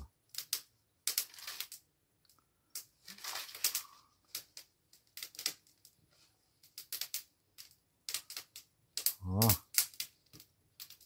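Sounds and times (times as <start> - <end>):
wood fire crackling: 8.1 - 10.4.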